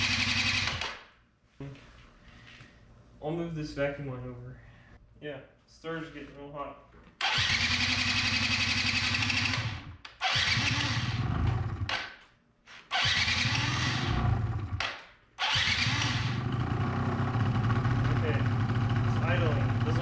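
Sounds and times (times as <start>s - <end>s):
scooter engine running: 0.0s - 0.8s, 7.3s - 11.9s, 15.5s - 20.0s
scooter starter cranking: 0.0s - 1.0s, 7.2s - 12.0s, 12.9s - 20.0s.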